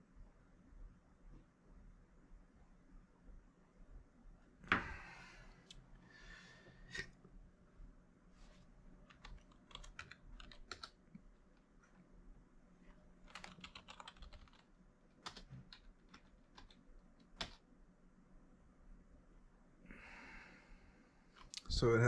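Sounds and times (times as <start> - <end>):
keyboard typing: 9.0 - 11.0, 13.2 - 17.6.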